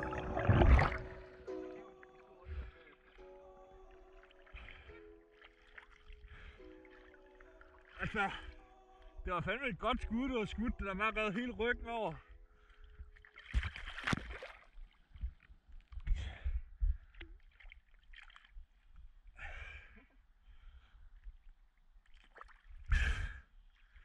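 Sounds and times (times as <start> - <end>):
low watery rumble: 0.0 - 5.0
water splashing and sloshing: 0.0 - 9.2, 12.5 - 16.3, 16.9 - 19.3, 21.2 - 22.9.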